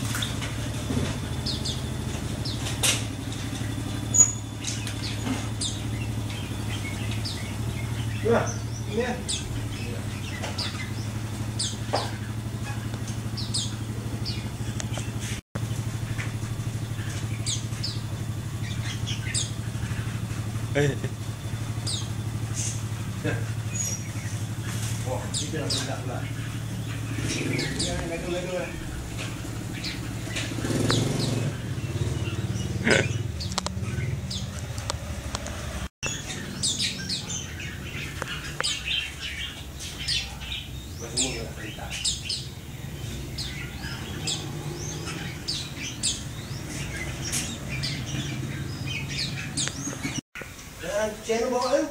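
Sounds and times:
wings fluttering in a cage: 0.0s - 32.7s, 43.0s - 50.2s
high bird chirps: 0.0s - 35.2s, 36.0s - 50.6s
low steady rumble: 0.0s - 50.2s
motorcycle engine idling: 0.0s - 51.8s.

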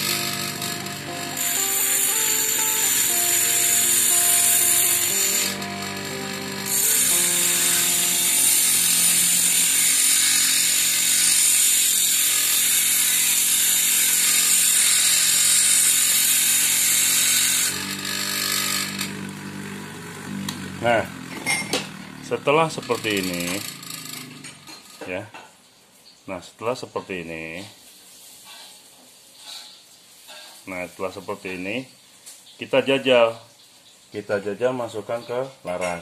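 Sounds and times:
angle grinder grinding metal: 0.0s - 25.1s.

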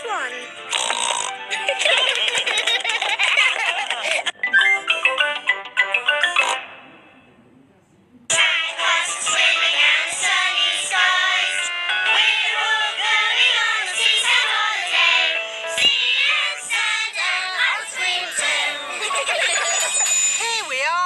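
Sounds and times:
cartoon voices singing: 8.3s - 19.8s
musical backing: 8.3s - 20.7s.

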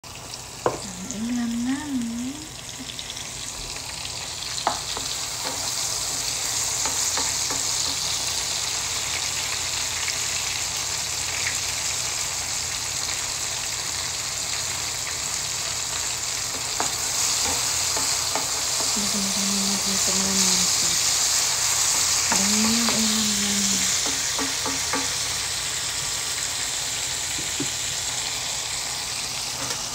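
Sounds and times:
food sizzling in hot oil: 0.0s - 29.9s
wooden spatula tapping a pan: 4.6s - 8.1s, 16.5s - 19.0s, 23.9s - 25.2s, 27.3s - 27.8s.

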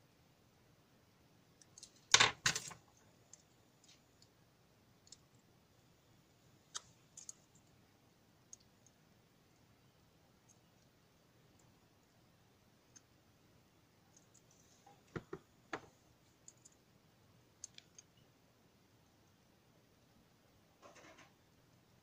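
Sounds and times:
clips and circuit board handled: 1.6s - 4.0s
faint clicks and taps: 17.6s - 18.2s.

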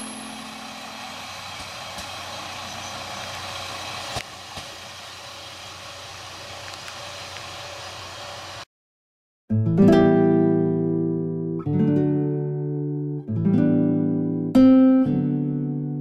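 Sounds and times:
diesel train running on track: 0.0s - 8.7s.

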